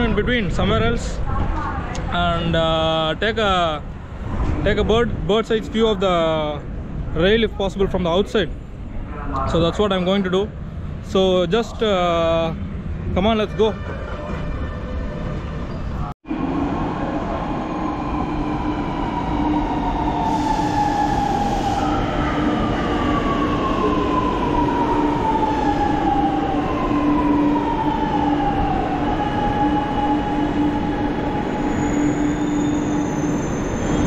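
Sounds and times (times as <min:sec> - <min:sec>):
electric train low hum: 0:13.9 - 0:34.0.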